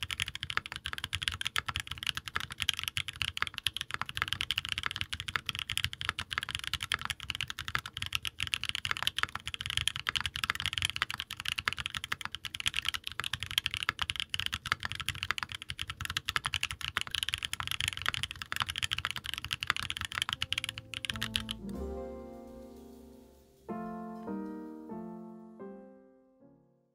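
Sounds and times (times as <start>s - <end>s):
rapid keyboard typing: 0.0s - 21.8s
piano music: 20.2s - 26.9s.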